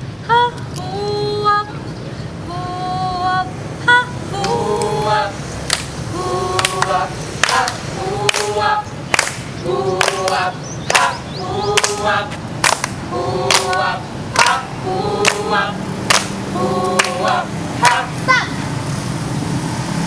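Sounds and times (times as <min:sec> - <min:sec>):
group singing rhythmic vocal beat: 0:03.9 - 0:18.4
hand claps: 0:05.7 - 0:05.9, 0:06.6 - 0:11.2, 0:11.8 - 0:13.8, 0:14.4 - 0:14.6, 0:15.2 - 0:15.5, 0:16.1 - 0:16.4, 0:17.0 - 0:18.0.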